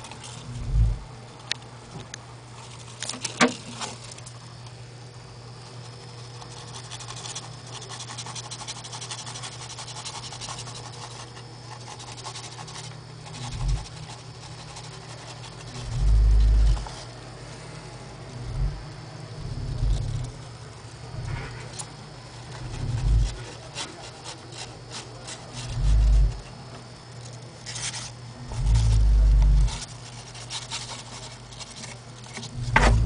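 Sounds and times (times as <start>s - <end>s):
low hum: 0.1s - 1.6s, 13.3s - 14.9s, 15.5s - 23.6s, 25.5s - 26.6s, 28.0s - 30.2s, 32.4s - 33.0s
small animal claws scratching: 5.4s - 17.2s, 21.1s - 26.6s, 27.2s - 33.0s
dull bumps: 18.4s - 20.4s, 32.6s - 33.0s.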